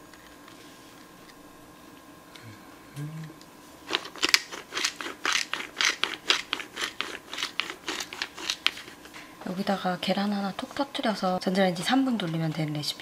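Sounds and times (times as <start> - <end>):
pepper mill grinding: 3.8 - 9.1.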